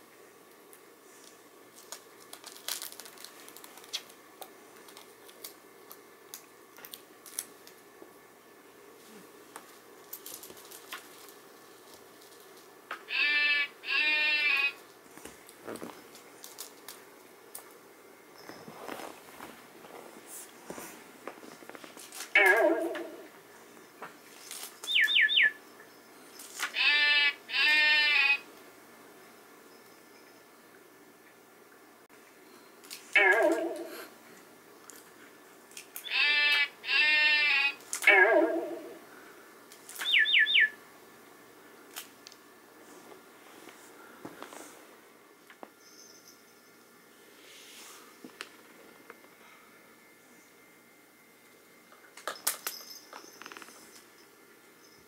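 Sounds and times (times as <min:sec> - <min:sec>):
cellophane tape crinkling: 0:00.7 - 0:07.9, 0:09.5 - 0:12.7, 0:14.8 - 0:17.8, 0:21.4 - 0:22.4, 0:24.3 - 0:25.0
electronic bleating tones: 0:13.1 - 0:14.8, 0:22.4 - 0:23.2, 0:26.7 - 0:28.5, 0:36.0 - 0:38.9
electronic toy chirps: 0:24.9 - 0:25.5, 0:40.0 - 0:40.7.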